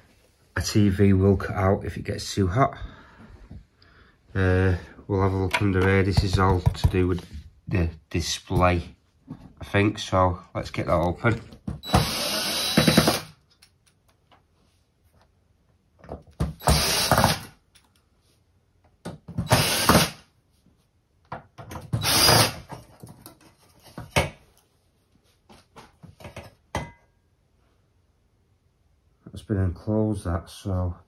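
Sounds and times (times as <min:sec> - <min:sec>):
cordless screwdriver running: 0:11.8 - 0:13.3, 0:16.6 - 0:17.5, 0:19.5 - 0:20.2, 0:22.0 - 0:22.6.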